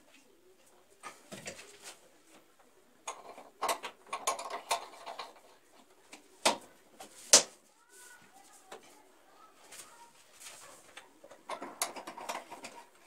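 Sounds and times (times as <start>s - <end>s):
clicks and knocks on plastic pipes: 3.0s - 7.6s, 10.9s - 13.0s.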